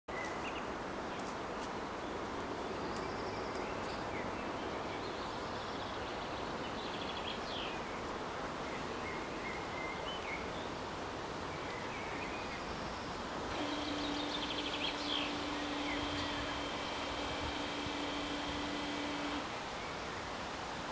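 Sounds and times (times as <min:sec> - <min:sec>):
outdoor background noise: 0:00.1 - 0:20.9
small birds chirping: 0:11.6 - 0:20.1
barrier motor electric hum: 0:13.5 - 0:19.6.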